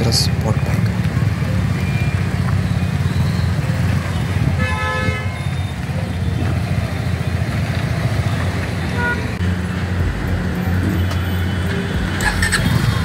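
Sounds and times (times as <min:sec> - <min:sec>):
vehicle horn toot: 0:04.5 - 0:05.6, 0:08.9 - 0:09.4.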